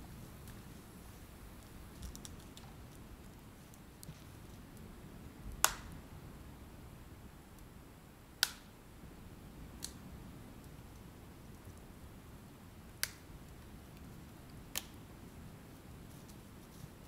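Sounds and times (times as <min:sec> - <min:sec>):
low steady background: 0:00.0 - 0:17.0
sharp cracks: 0:05.6 - 0:06.0, 0:08.4 - 0:08.7.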